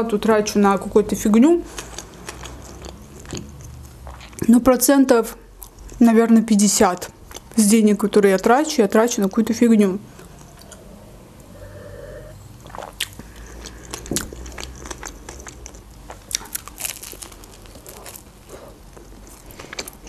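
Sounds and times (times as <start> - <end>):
person chewing food: 1.7 - 4.4, 7.2 - 7.6, 10.1 - 11.8, 12.6 - 20.0.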